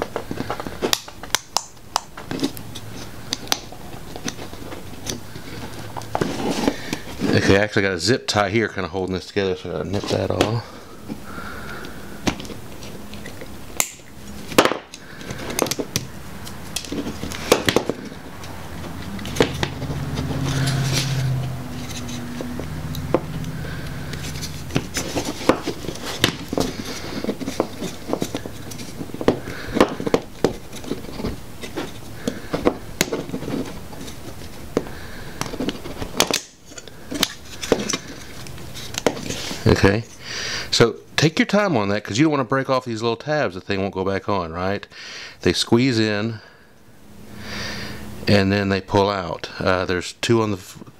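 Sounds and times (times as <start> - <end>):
low hum: 10.4 - 36.1.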